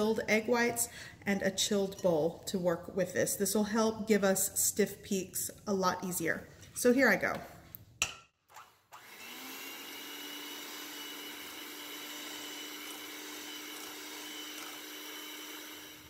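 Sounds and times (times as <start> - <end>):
electric hand mixer whirring: 8.5 - 16.0.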